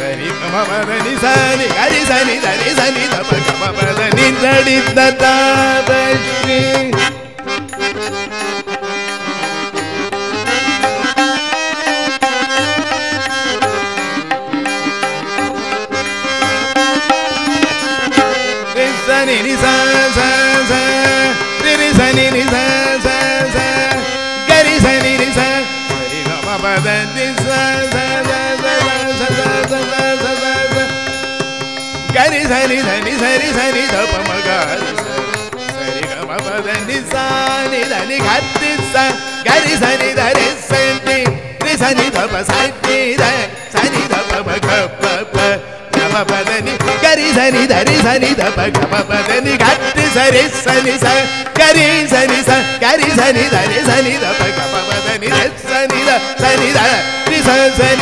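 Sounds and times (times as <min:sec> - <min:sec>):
harmonium melody: 0:00.0 - 0:58.0
tabla and mridangam strokes: 0:00.0 - 0:58.0.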